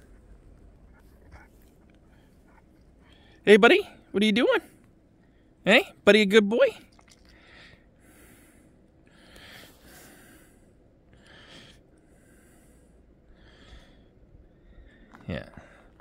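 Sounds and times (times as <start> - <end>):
soft breathing: 0.0 - 3.4, 7.2 - 16.0.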